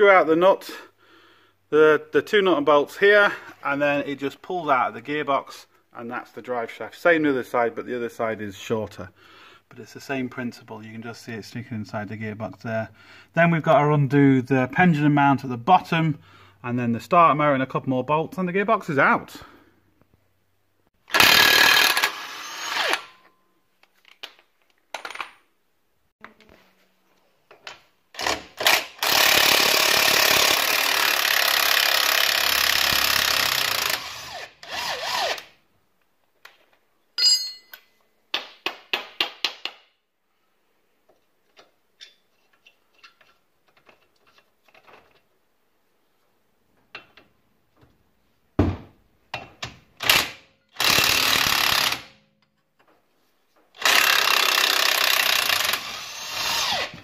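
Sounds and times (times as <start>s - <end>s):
impact wrench hammering: 37.2s - 39.8s.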